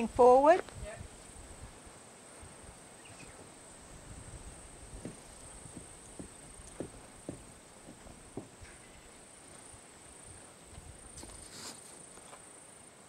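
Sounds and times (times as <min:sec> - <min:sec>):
wind rumble on microphone: 0:00.0 - 0:01.9, 0:02.5 - 0:07.0
soft knocks: 0:05.0 - 0:08.9.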